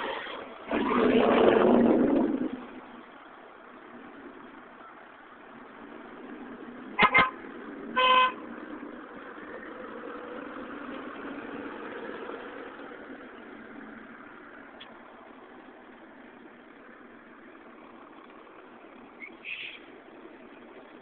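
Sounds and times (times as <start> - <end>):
bus engine running: 0.0 - 21.0
vehicle horn toots: 7.0 - 7.4, 8.0 - 8.4.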